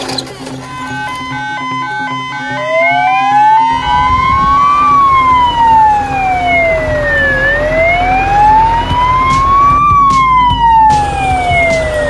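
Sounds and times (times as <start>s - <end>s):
fire truck siren wailing: 0.0s - 12.0s.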